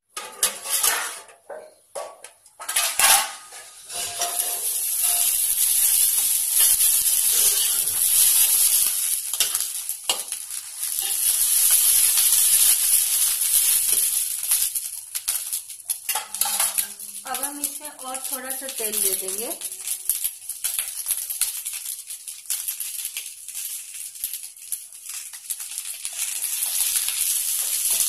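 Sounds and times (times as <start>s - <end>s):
spatula scraping pan: 0.2s - 1.4s, 2.6s - 12.0s, 16.0s - 17.3s
slices sizzling in hot oil: 2.6s - 28.0s.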